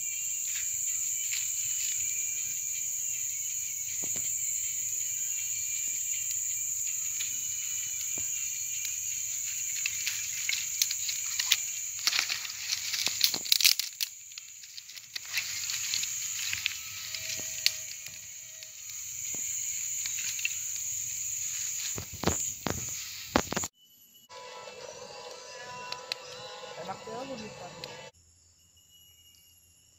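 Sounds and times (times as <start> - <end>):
twigs rustling and snapping: 7.2 - 23.7.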